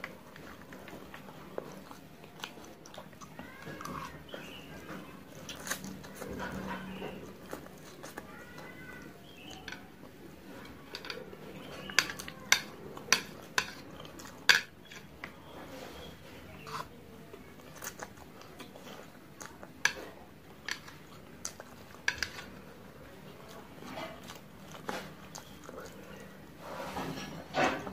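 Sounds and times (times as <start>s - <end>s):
noodles slurped and chewed: 0.0s - 27.9s
chopsticks clicking on metal tray: 22.0s - 22.5s.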